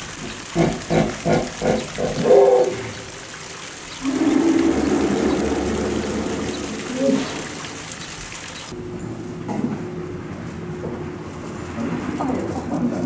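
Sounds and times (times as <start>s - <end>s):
hippopotamus calling: 0.6s - 3.1s, 4.0s - 8.0s.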